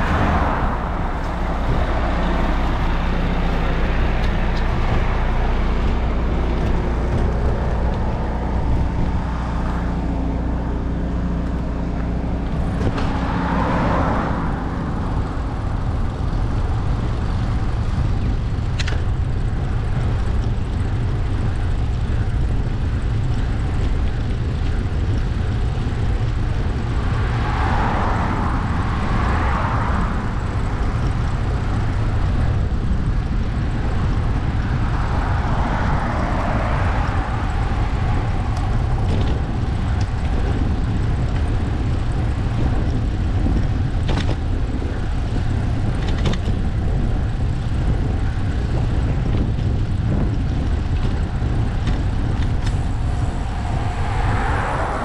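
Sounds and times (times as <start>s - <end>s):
car passing: 0.0s - 17.8s, 26.3s - 32.4s, 33.4s - 42.6s, 52.0s - 55.0s
wind and road noise: 0.0s - 55.0s.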